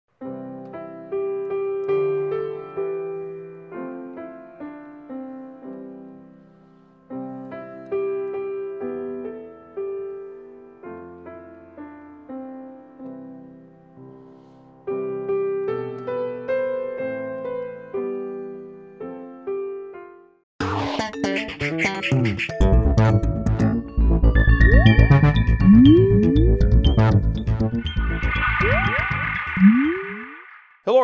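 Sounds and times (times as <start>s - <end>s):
solo piano: 0.2s - 6.3s, 14.9s - 20.2s.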